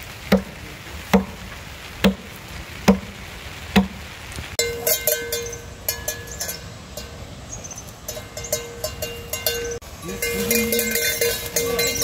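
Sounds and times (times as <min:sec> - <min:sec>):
livestock bell clanking: 0:04.6 - 0:12.0.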